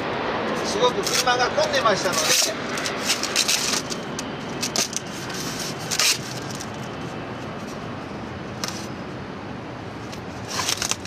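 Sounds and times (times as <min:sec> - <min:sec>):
steady background noise: 0:00.0 - 0:11.0
sharp styrofoam scrape: 0:04.6 - 0:06.8.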